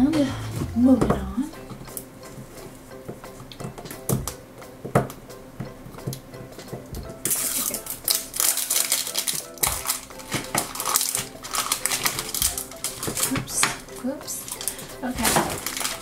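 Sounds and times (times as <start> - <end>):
soft background music: 0.0 - 16.0
cellophane wrapper crinkling: 7.2 - 16.0.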